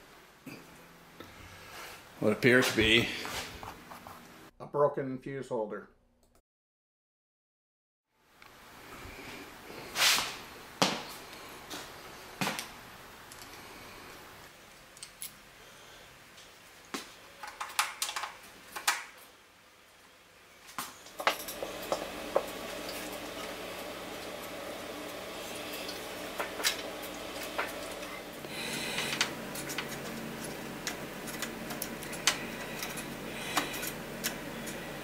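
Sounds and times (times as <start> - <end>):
steady low hum: 21.0 - 35.0.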